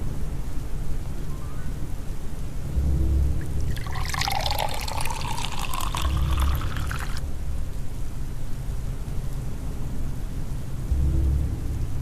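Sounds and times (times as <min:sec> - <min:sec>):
water pouring into plastic cup: 0:03.4 - 0:07.2.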